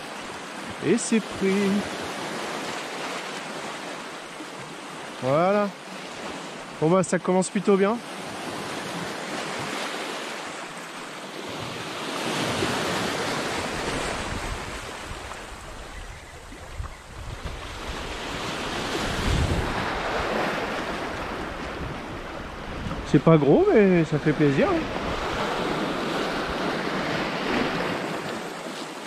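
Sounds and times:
wind buffeting microphone: 0:13.4 - 0:28.1.

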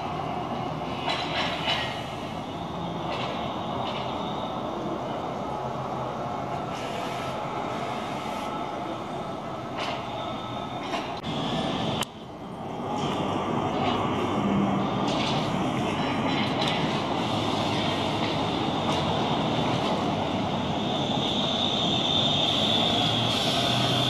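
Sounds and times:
street traffic: 0:00.0 - 0:24.0
trolleybus motor and tyres: 0:00.0 - 0:24.0
air hiss: 0:06.7 - 0:08.6, 0:21.2 - 0:24.0.

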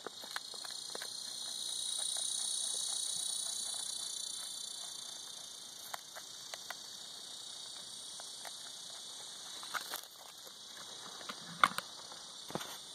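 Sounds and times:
insects chorus: 0:00.0 - 0:12.9.

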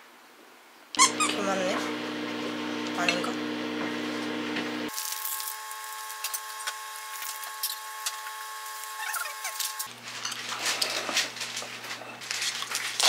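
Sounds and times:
packaging clicks and rustles: 0:04.9 - 0:13.0
plastic bag crinkling: 0:04.9 - 0:13.0.

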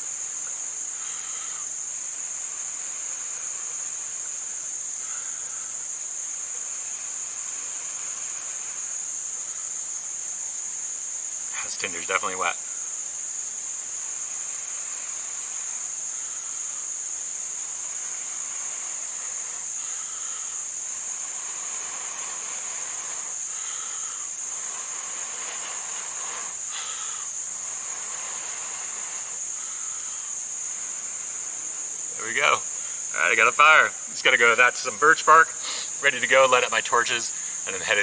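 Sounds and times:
insects droning: 0:00.0 - 0:38.0.

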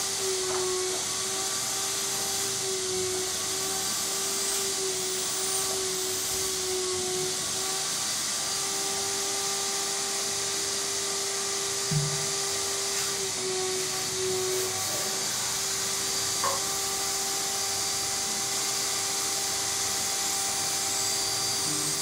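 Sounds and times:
electric motor humming: 0:00.0 - 0:22.0
strong hiss: 0:11.9 - 0:13.9.

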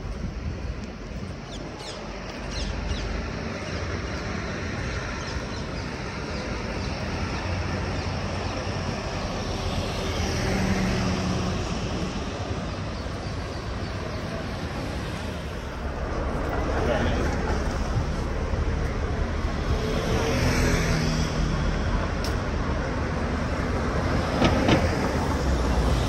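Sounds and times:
city street traffic: 0:00.0 - 0:26.0.

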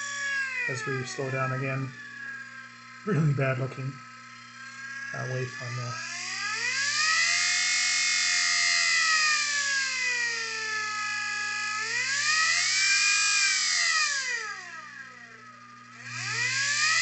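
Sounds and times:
low hum with high hiss: 0:00.0 - 0:08.7
electric motor whining: 0:00.0 - 0:17.0.

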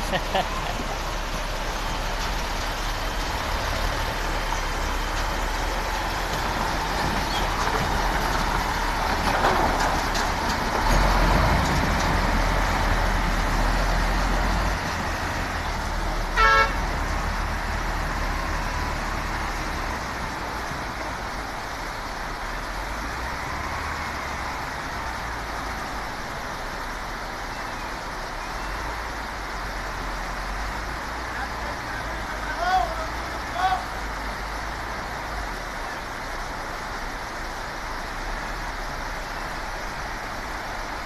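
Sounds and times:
diesel truck engine running: 0:00.0 - 0:41.0
rushing water: 0:00.0 - 0:41.0
short horn toot: 0:16.4 - 0:16.8.

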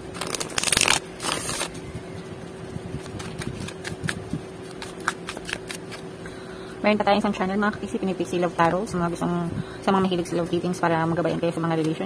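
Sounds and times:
cards riffle shuffling: 0:00.0 - 0:01.8, 0:03.0 - 0:06.1.

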